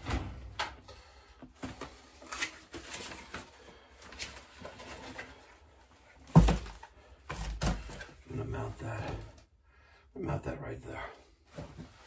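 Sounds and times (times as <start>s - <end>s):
cardboard rustling: 1.5s - 8.2s.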